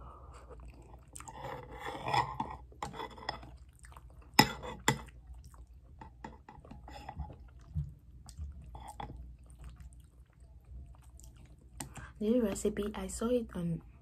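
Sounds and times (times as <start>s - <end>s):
chewing and slurping noodles: 0.3s - 12.2s.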